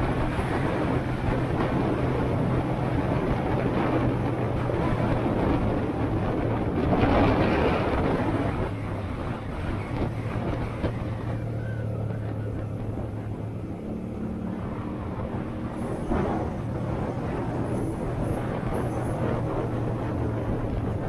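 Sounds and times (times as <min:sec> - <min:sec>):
wind on microphone: 0:00.0 - 0:21.0.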